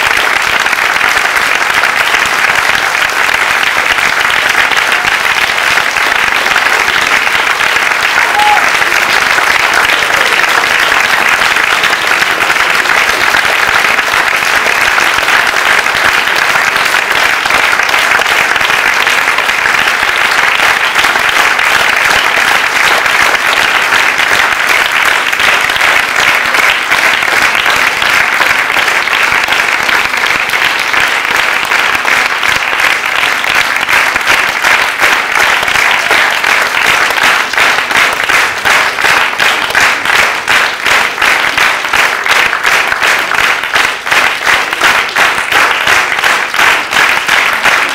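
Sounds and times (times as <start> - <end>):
audience applauding: 0.0 - 47.9.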